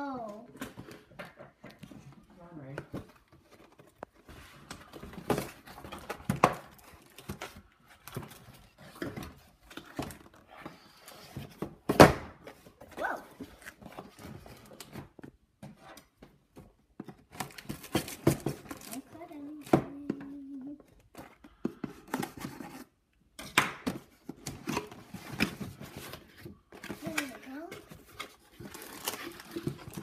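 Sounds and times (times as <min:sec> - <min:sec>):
toy box knocks and rustles: 0:00.5 - 0:30.0.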